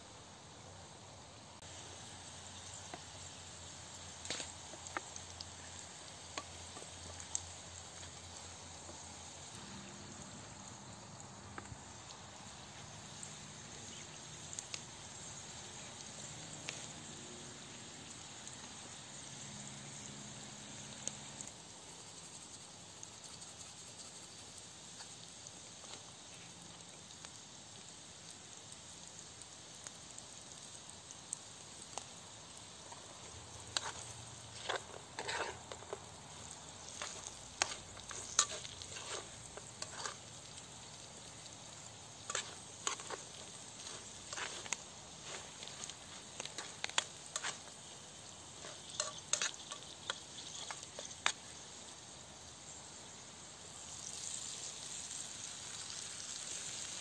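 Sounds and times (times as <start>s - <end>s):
potatoes sizzling in oil: 0.0s - 57.0s
spoon scraping and knocking pan: 33.7s - 40.2s, 42.3s - 47.7s, 48.6s - 51.5s.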